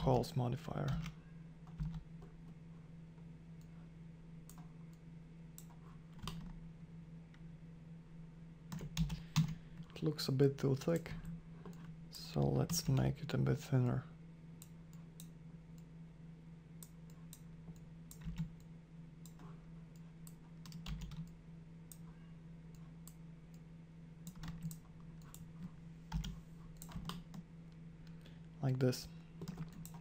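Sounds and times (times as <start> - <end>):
low electrical hum: 0.0 - 30.0
keyboard and mouse clicks: 5.6 - 6.6, 16.8 - 23.6, 24.2 - 27.4, 29.4 - 30.0.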